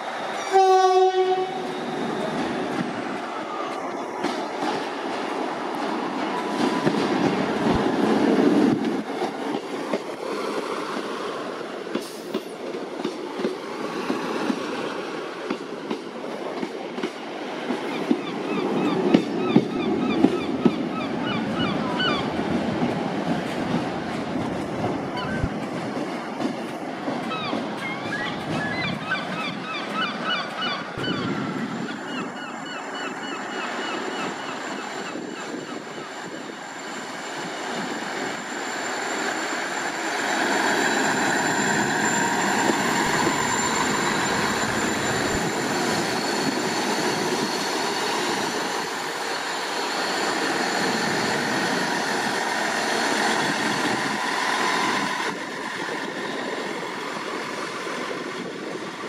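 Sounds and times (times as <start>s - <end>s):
diesel train engine: 0.0s - 59.0s
train engine whine: 0.0s - 59.0s
train wheels squealing: 1.4s - 4.1s, 17.8s - 22.4s, 27.2s - 59.0s.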